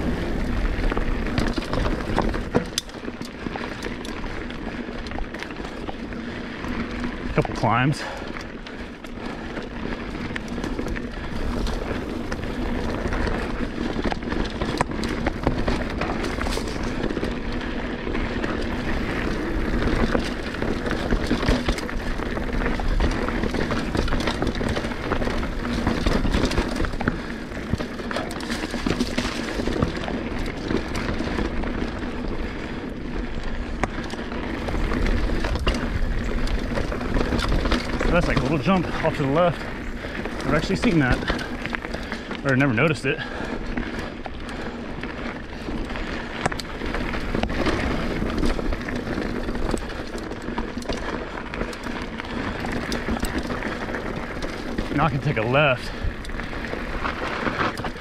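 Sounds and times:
bike rattling over bumps: 0:00.0 - 0:58.0
bike tyres rolling over dirt: 0:00.0 - 0:58.0.

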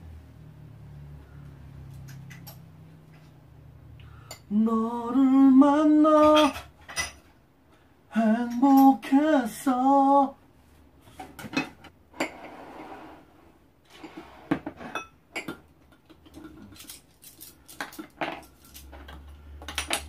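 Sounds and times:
dishes and cutlery clinking: 0:06.2 - 0:07.3, 0:11.2 - 0:12.6, 0:13.9 - 0:17.0.

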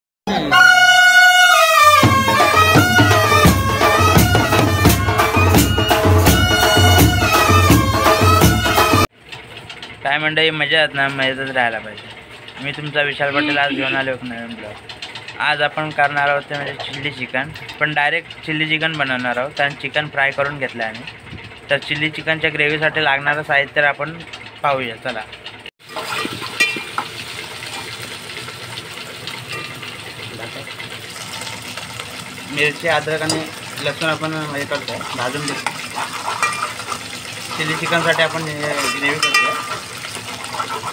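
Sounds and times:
reedy sustained melody: 0:00.3 - 0:09.0
steady drum beat: 0:01.5 - 0:09.1
food sizzling in hot oil: 0:25.8 - 0:40.9.

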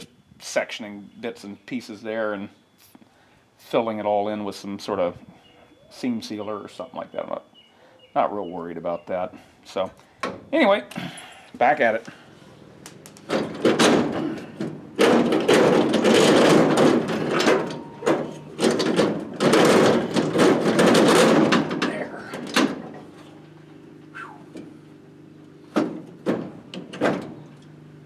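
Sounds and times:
metal parts knocking and rattling: 0:13.0 - 0:23.6.

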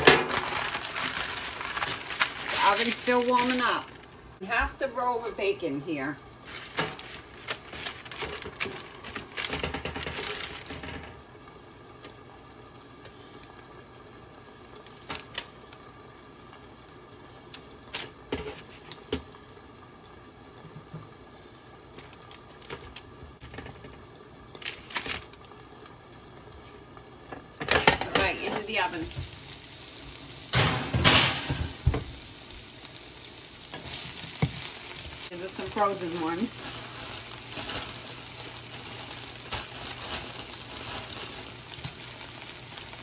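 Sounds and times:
paper rustling on metal pan: 0:00.0 - 0:04.1, 0:06.4 - 0:11.1, 0:24.6 - 0:25.3, 0:33.7 - 0:43.0.

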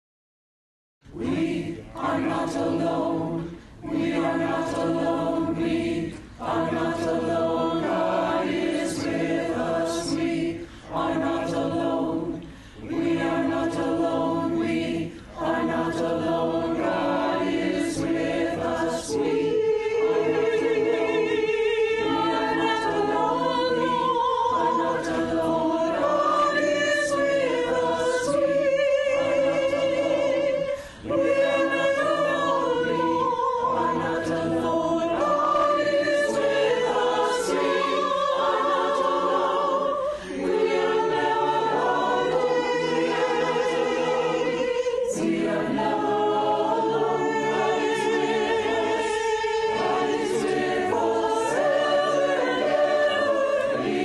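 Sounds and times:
choir singing a hymn: 0:01.1 - 0:54.0.

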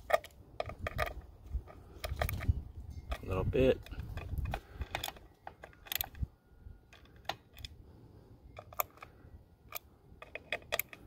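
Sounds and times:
hand wrench metallic clicks: 0:03.1 - 0:06.3, 0:08.6 - 0:09.1, 0:09.7 - 0:11.0.

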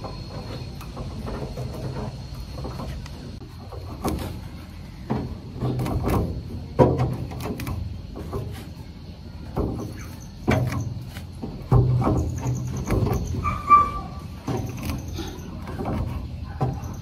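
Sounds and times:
ringing knocks and thuds: 0:09.4 - 0:17.0.

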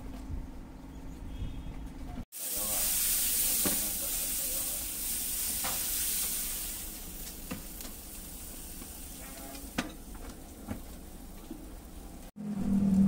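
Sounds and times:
water sizzling on hot pan: 0:02.3 - 0:12.4.

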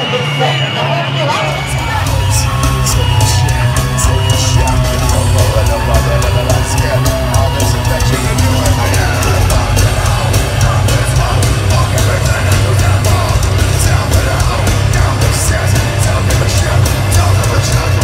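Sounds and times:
heavy metal band playing live: 0:00.0 - 0:18.0
fast drumming and cymbal hits: 0:01.5 - 0:18.0.

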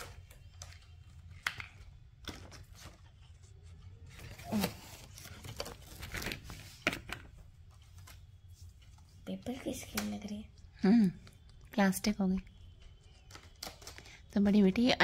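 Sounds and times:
plastic packaging crinkling: 0:13.2 - 0:14.6.

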